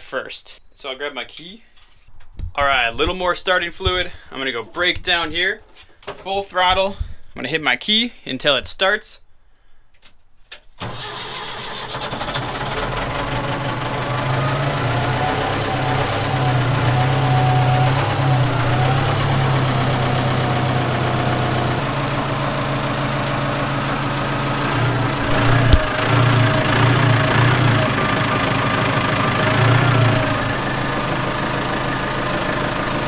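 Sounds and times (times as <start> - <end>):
diesel engine at full throttle: 10.8 - 33.0.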